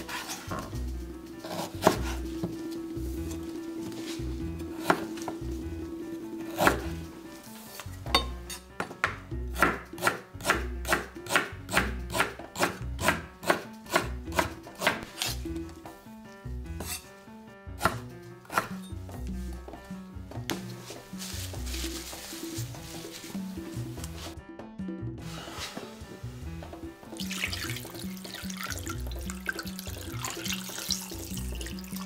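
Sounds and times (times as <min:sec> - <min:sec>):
knife chopping on cutting board: 0:01.4 - 0:02.6, 0:08.8 - 0:15.4, 0:17.8 - 0:18.8.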